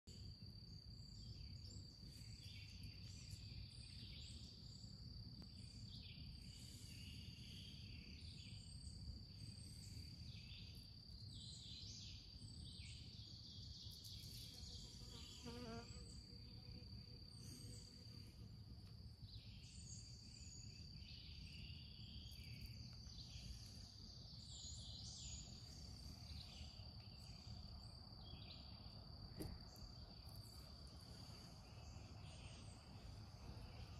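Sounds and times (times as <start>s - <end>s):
insect chirping calls: 0.1s - 33.9s.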